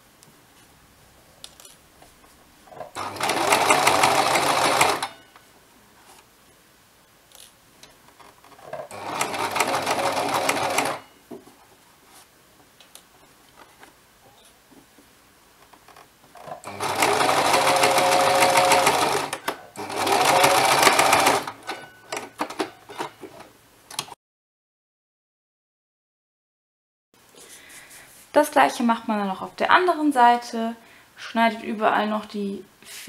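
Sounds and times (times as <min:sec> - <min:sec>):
sewing machine stitching: 0:02.8 - 0:05.2, 0:08.6 - 0:11.0, 0:16.4 - 0:22.7.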